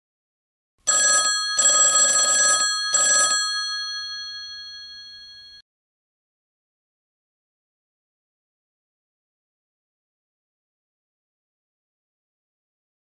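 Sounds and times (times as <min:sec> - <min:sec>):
telephone bell ringing: 0:00.9 - 0:05.6.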